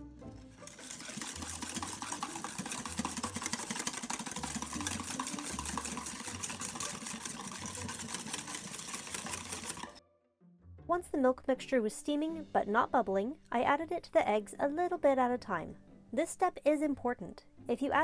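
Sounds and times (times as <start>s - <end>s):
whisk clattering against bowl: 0.7s - 10.0s.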